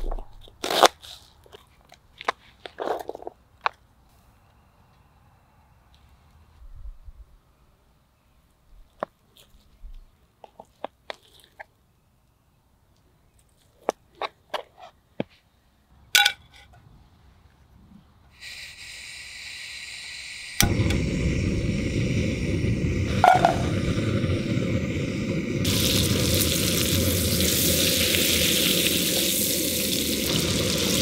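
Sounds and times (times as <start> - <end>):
high hiss: 18.3 - 31.0
gas stove burner rushing: 18.7 - 31.0.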